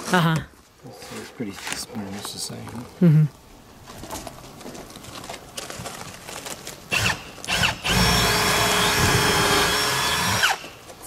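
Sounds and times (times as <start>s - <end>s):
cordless drill whining: 6.9s - 10.7s.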